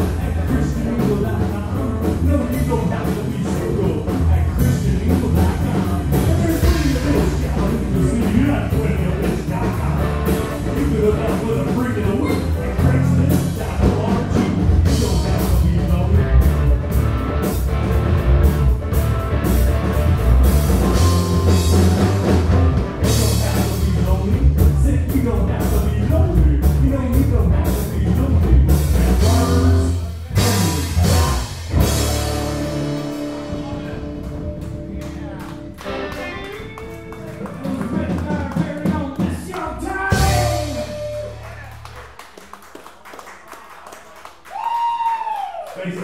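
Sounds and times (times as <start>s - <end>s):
person singing: 0.0s - 16.7s, 23.0s - 41.9s
electric guitar: 0.0s - 24.8s, 26.7s - 38.9s, 40.1s - 42.2s
bass guitar: 0.0s - 42.4s
drum kit: 0.0s - 42.4s.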